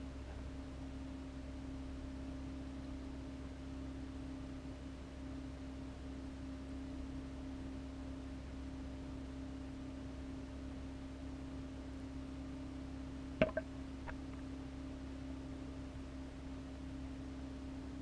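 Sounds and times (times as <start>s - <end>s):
aquarium pumps humming: 13.3s - 14.3s.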